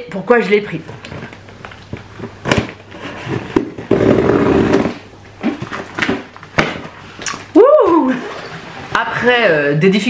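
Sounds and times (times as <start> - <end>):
person exclaiming: 7.6 - 8.3.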